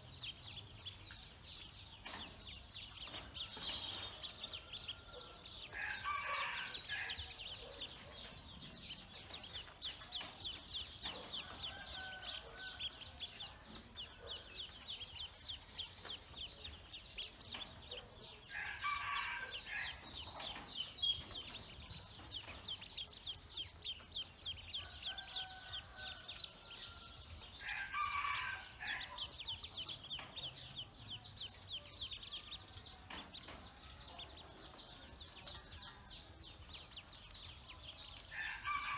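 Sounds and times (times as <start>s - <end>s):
ducklings peeping: 0.0s - 38.9s
rooster crowing: 4.4s - 7.5s, 11.4s - 13.6s, 18.5s - 20.0s, 24.8s - 29.3s, 38.3s - 38.9s.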